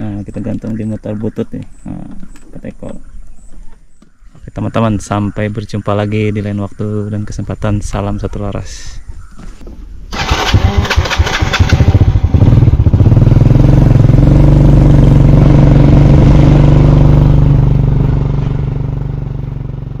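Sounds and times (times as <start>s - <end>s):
motorcycle engine starting and running: 10.1s - 20.0s.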